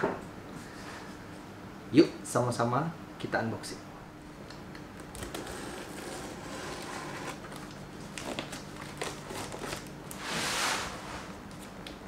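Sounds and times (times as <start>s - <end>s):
tape tearing: 5.0s - 10.2s.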